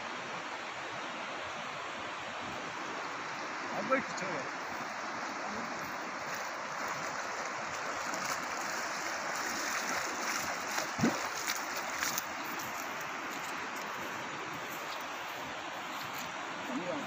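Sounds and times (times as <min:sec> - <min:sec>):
river water flowing: 0:00.0 - 0:17.0
person wading splashes: 0:04.7 - 0:14.8.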